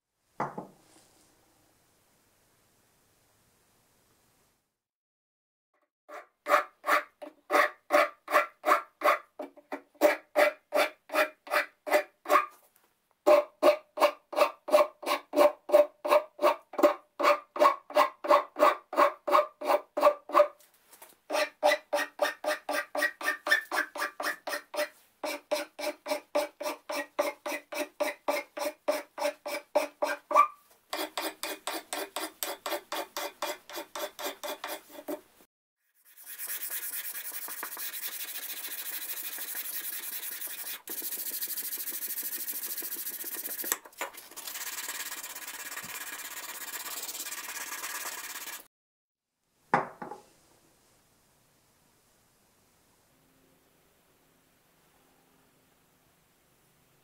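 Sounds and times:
metal file rasping on wood: 6.1 - 12.5, 13.3 - 20.5, 21.3 - 35.3, 36.0 - 48.6
sandpaper rubbing on wood: 36.0 - 48.7.

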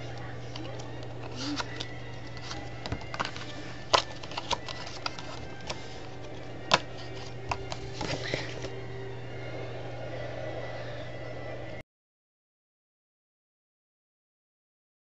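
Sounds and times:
playing cards clicking and snapping: 0.0 - 8.7
steady low hum: 0.0 - 11.8.

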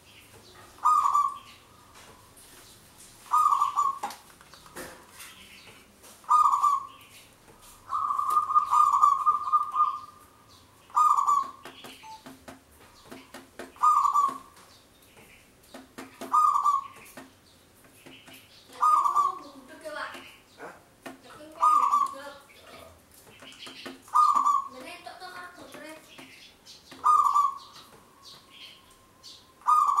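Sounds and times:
dove cooing: 0.8 - 1.4, 3.3 - 4.1, 6.3 - 6.9, 7.9 - 10.2, 10.9 - 11.7, 13.8 - 14.5, 16.2 - 17.0, 18.8 - 19.6, 21.4 - 23.0, 24.1 - 25.0, 27.0 - 28.3, 29.6 - 30.0.

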